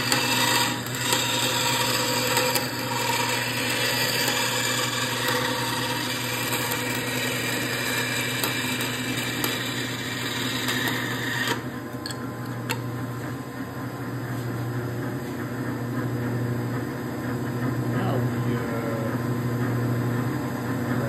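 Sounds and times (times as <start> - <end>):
band saw blade cutting: 0.0 - 11.7
saw motor humming: 0.0 - 13.2.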